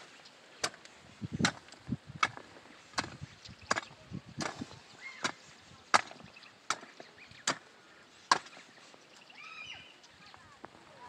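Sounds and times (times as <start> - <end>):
hoe blade chopping dry ground: 0.6 - 8.7.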